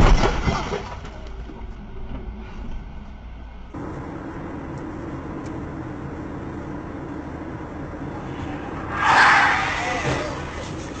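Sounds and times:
car driving road noise: 0.8 - 11.0.

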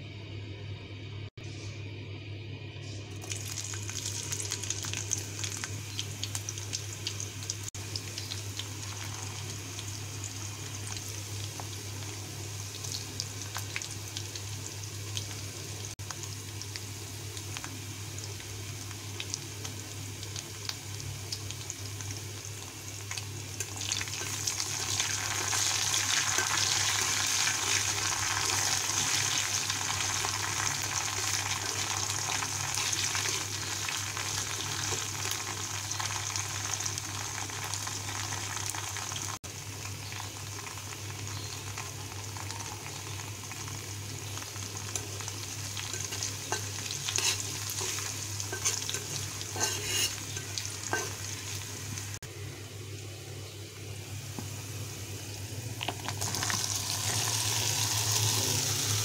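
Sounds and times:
oil sizzling in a wok: 2.9 - 59.0
spatula stirring in a wok: 45.8 - 51.3.

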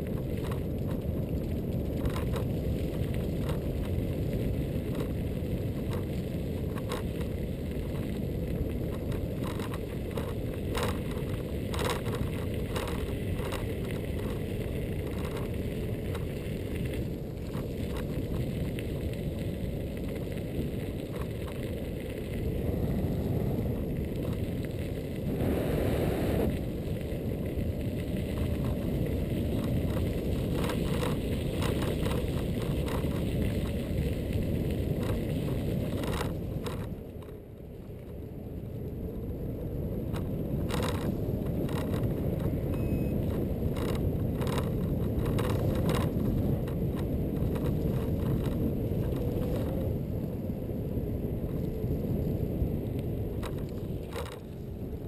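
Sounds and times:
clicks and knocks from bumps: 0.0 - 22.4, 26.5 - 37.4, 40.1 - 49.9, 53.3 - 54.6
tyre noise on path: 0.0 - 55.0
wind rumbling on microphone: 0.0 - 55.0.

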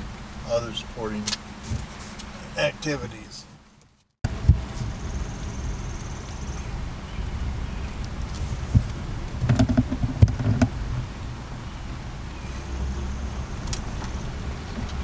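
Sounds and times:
vehicle rumbling on gravel road: 0.0 - 15.0.

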